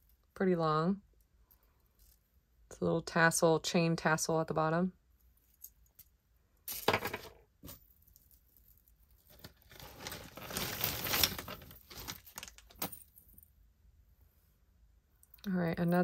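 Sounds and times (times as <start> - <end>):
metal chain clinking and sliding: 7.6 - 13.5
paper towel rustling: 9.6 - 12.4.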